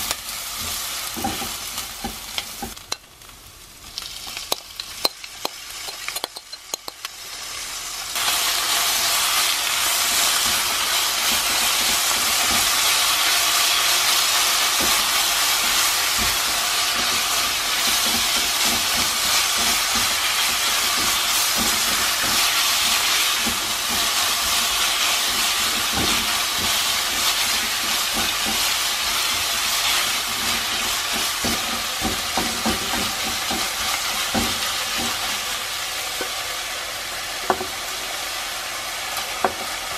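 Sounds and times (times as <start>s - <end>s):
meat and onions sizzling: 0.0s - 39.9s
spatula scraping and tapping: 4.3s - 7.1s, 14.8s - 35.2s.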